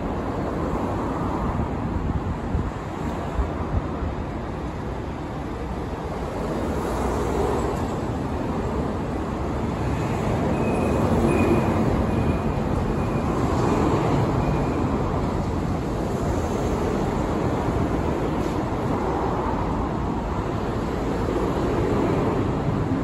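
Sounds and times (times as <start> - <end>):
traffic rumble: 0.0 - 23.0.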